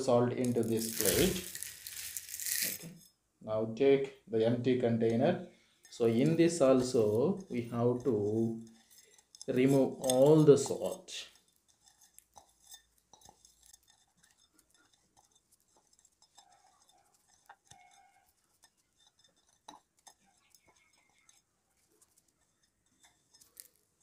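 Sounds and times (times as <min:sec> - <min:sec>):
glass container clicking: 0:00.4 - 0:03.0.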